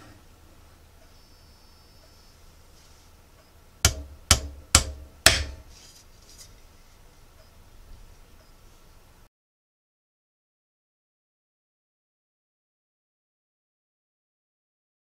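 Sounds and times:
hammer knocking on metal: 3.8 - 5.7.

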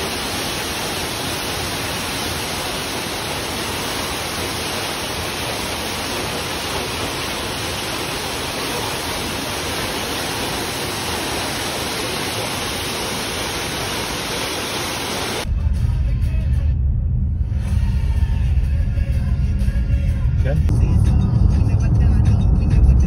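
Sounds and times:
waterfall rushing: 0.0 - 15.5.

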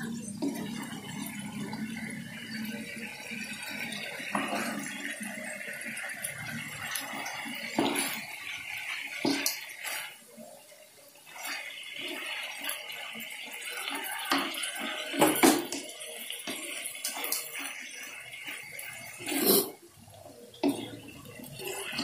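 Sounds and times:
meat sizzling in a wok: 0.0 - 19.8
wooden spatula scraping a pan: 4.3 - 5.0, 9.2 - 10.2, 16.4 - 19.8.

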